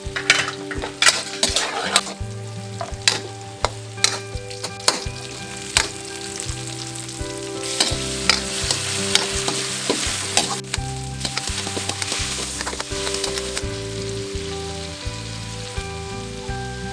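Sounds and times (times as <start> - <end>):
food sizzling in hot oil: 0.0 - 16.9
metal spatula scraping wok: 0.2 - 6.4, 7.6 - 13.9.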